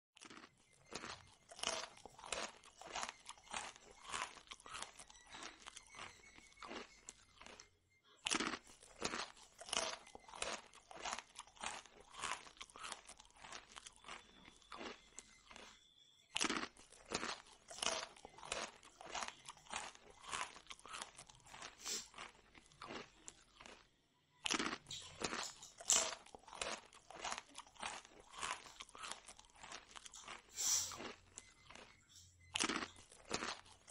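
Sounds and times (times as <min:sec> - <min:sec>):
chewing crunchy food: 0:00.2 - 0:33.9.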